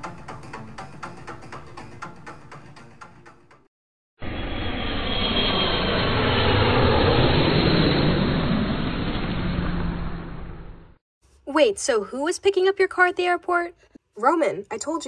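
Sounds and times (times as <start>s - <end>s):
jet airliner flying over: 4.2s - 11.0s.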